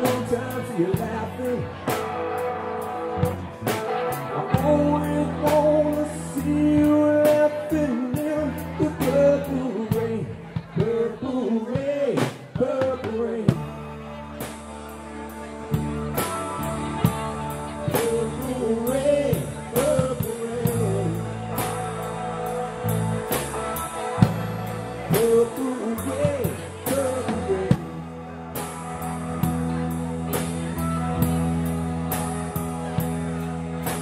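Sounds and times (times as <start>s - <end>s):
electric guitar melody bending: 0.0s - 11.4s, 13.4s - 34.0s
live rock band playing: 0.0s - 34.0s.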